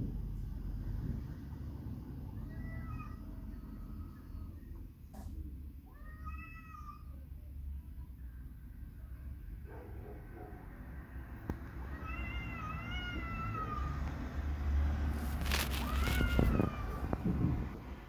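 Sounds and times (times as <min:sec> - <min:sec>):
cats yowling: 0:02.3 - 0:04.5, 0:05.8 - 0:07.2, 0:11.8 - 0:14.1, 0:15.5 - 0:17.4.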